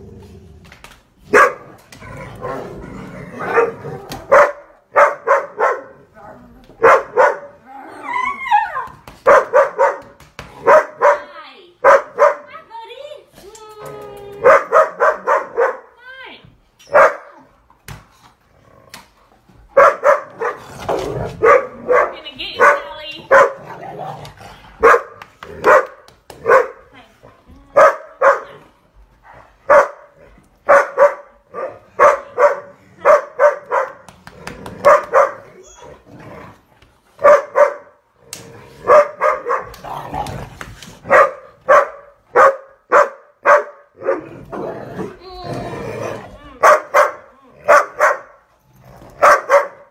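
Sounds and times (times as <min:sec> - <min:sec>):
dogs barking: 0:01.3 - 0:01.8, 0:03.4 - 0:06.1, 0:06.8 - 0:07.6, 0:09.2 - 0:12.5, 0:14.4 - 0:16.0, 0:16.9 - 0:17.3, 0:19.7 - 0:23.8, 0:24.8 - 0:26.8, 0:27.8 - 0:28.6, 0:29.7 - 0:34.1, 0:34.7 - 0:35.6, 0:37.2 - 0:38.0, 0:38.8 - 0:39.8, 0:41.0 - 0:44.3, 0:46.6 - 0:48.4, 0:49.2 - 0:49.9.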